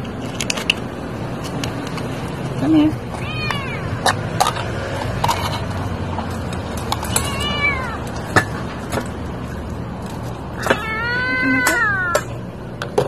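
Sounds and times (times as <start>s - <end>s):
kitten meowing: 3.2s - 4.0s, 7.2s - 8.1s, 10.6s - 12.3s.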